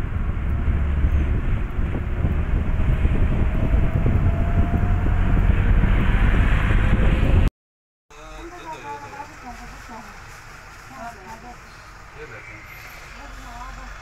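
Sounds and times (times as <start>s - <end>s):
car road and engine rumble: 0.0s - 7.5s, 8.1s - 14.0s
wind buffeting microphone: 0.0s - 7.5s.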